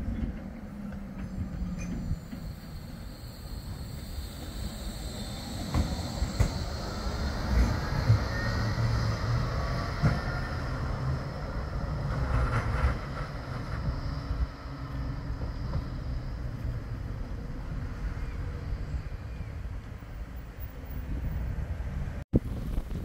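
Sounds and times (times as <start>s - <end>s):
tram wheels rumbling on rail: 0.0s - 23.0s
faint whine: 1.6s - 11.8s.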